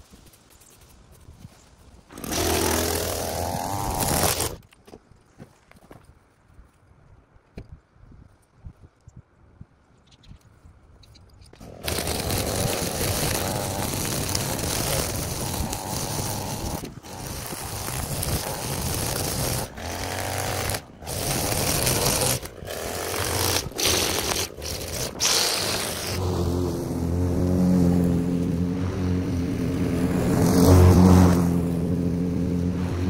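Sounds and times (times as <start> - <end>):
string trimmer running: 2.1 - 4.6, 11.6 - 33.0.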